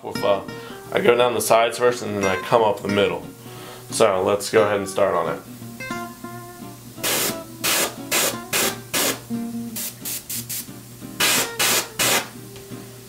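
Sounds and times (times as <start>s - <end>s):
soft guitar music: 0.0s - 13.0s
airbrush hissing bursts: 7.0s - 12.4s.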